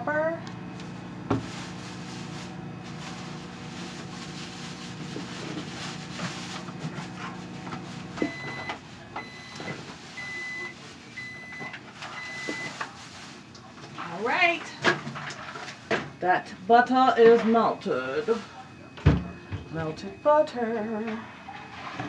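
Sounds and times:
microwave oven humming: 0:00.0 - 0:22.0
microwave beeps: 0:08.1 - 0:12.8, 0:17.0 - 0:22.0.

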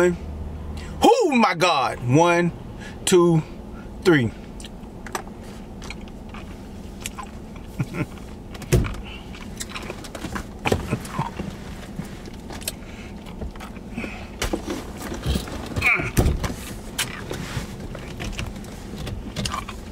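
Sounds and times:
low car cabin hum: 0:00.0 - 0:19.9
knocks and creaks in car seat: 0:08.1 - 0:19.9
man grunting: 0:15.8 - 0:16.2.

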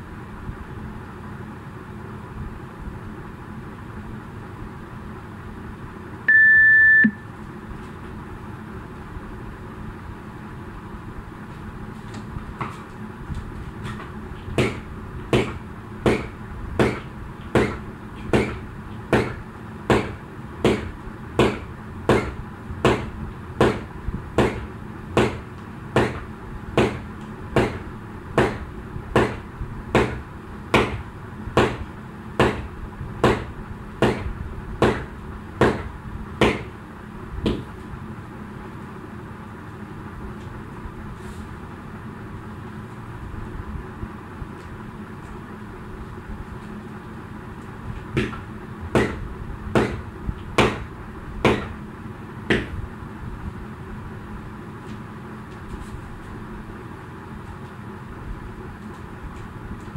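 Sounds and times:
high electronic timer beep: 0:06.3 - 0:07.3.

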